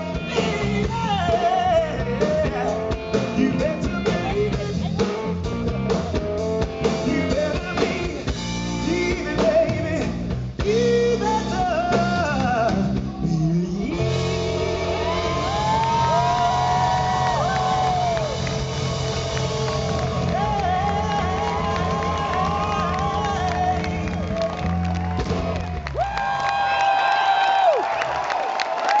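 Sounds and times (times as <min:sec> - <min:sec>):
man singing: 0:00.0 - 0:05.3, 0:06.8 - 0:16.7, 0:19.9 - 0:24.8
live rock band playing: 0:00.0 - 0:26.0.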